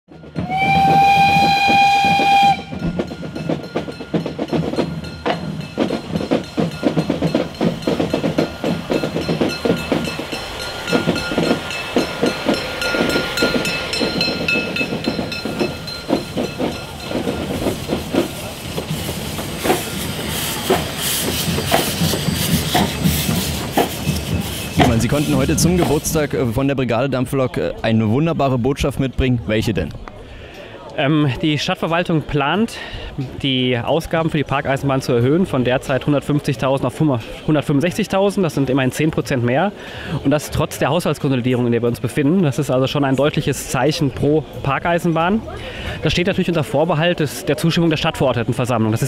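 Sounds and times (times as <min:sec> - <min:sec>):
steam locomotive chuffing: 0:00.1 - 0:26.7
steam whistle blast: 0:00.4 - 0:02.9
steam hissing: 0:00.4 - 0:26.3.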